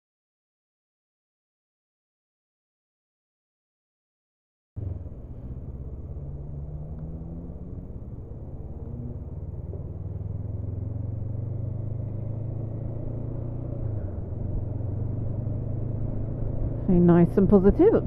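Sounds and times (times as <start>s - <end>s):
motorcycle engine accelerating: 4.8s - 18.0s.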